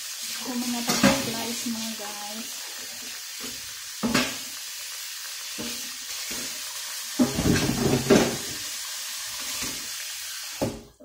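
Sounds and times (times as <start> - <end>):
splashing and clatter: 7.2 - 8.6.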